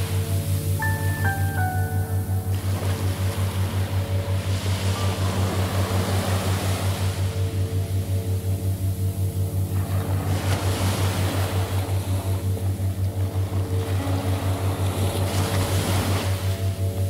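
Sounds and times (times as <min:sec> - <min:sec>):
faint held synth tones: 0:00.0 - 0:10.2
low pulsing tone: 0:00.0 - 0:17.0
surf-like noise wash: 0:00.0 - 0:17.0.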